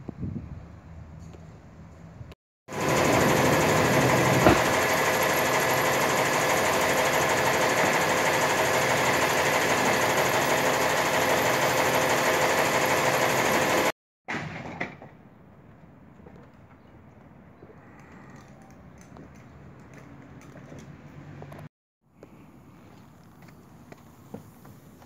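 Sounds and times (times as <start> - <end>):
truck engine running: 2.7 - 13.9.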